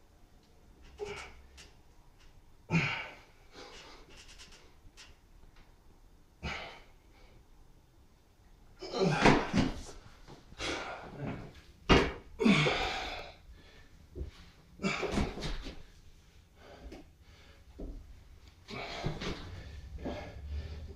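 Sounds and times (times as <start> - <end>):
person exhaling with effort: 12.4 - 13.4.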